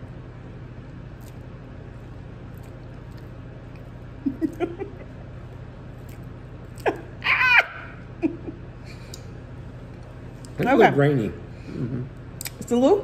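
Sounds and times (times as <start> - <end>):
woman laughing squeal: 6.9 - 8.6.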